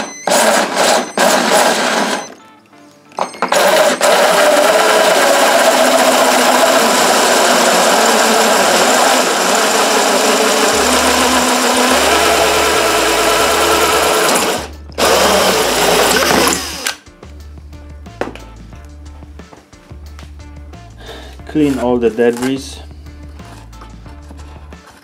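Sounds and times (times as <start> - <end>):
power drill hole saw cutting pipe: 0.0 - 2.4, 3.4 - 17.0.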